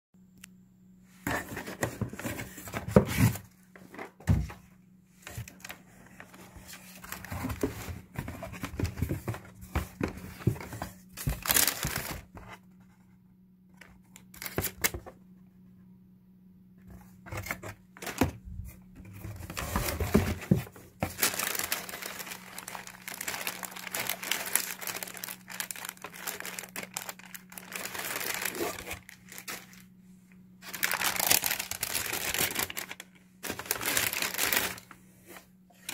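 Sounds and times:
paper rustling and crinkling: 5.2s - 13.1s, 16.8s - 29.9s, 30.6s - 35.9s.

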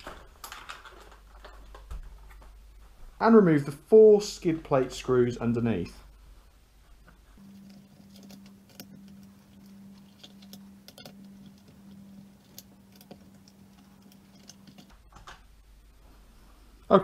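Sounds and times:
steady low hum: 2.0s - 17.0s
screws and parts handled: 7.4s - 15.4s.

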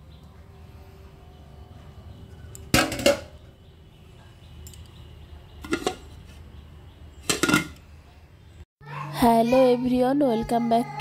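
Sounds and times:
metal cookware clanking: 2.7s - 3.4s, 5.6s - 6.1s, 7.2s - 7.8s.

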